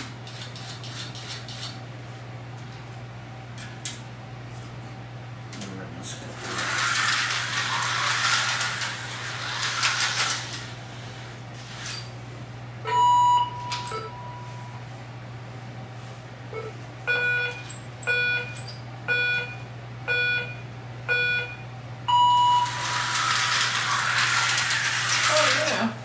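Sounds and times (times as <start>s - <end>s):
slot car motors whirring: 6.2s - 12.2s, 22.1s - 26.0s
countdown timer beeps: 12.9s - 14.4s, 16.6s - 22.7s.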